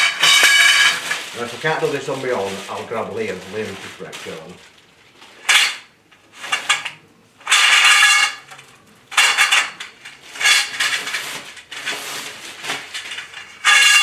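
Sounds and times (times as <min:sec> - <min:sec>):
metal tubes clanking: 0:00.0 - 0:01.9, 0:05.4 - 0:12.0, 0:12.8 - 0:14.0.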